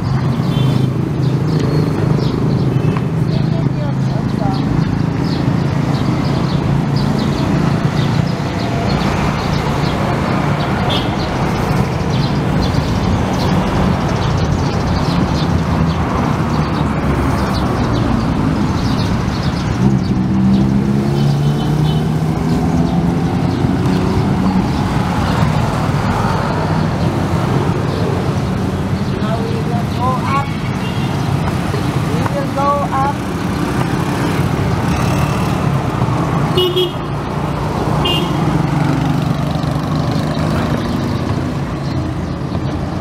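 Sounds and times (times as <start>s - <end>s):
motorbike engines passing: 0.0s - 43.0s.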